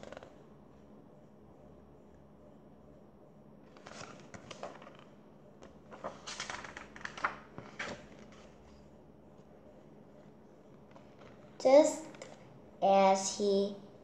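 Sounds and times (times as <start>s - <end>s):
book pages rustling: 3.7s - 12.4s.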